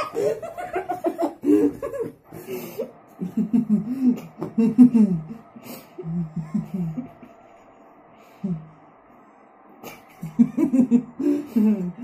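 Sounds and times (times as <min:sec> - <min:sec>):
young men snickering: 0:00.0 - 0:08.7.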